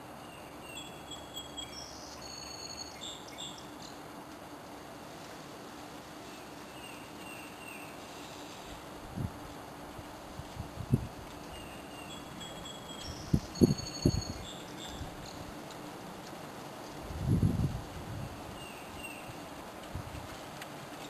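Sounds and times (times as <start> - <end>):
small birds whistling: 0.2 - 4.0, 11.5 - 15.5.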